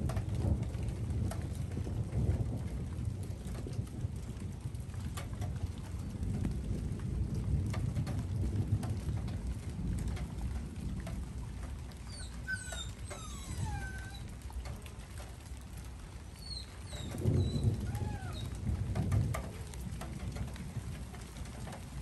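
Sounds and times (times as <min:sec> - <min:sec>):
low thunder rumble: 0:00.0 - 0:22.0
raindrop ticks: 0:00.0 - 0:22.0
short high falling calls: 0:17.8 - 0:18.5.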